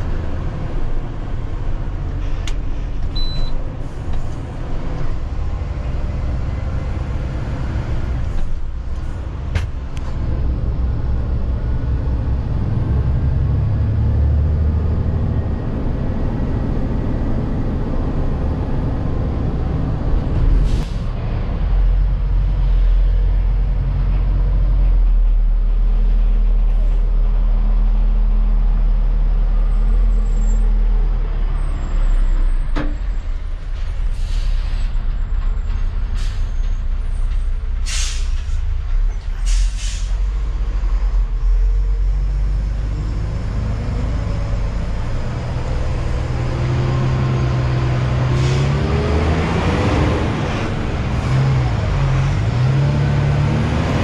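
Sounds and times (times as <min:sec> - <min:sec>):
air brakes hissing: 0:33.8 - 0:35.1, 0:36.0 - 0:36.9, 0:37.8 - 0:38.7, 0:39.3 - 0:40.3, 0:48.2 - 0:48.8.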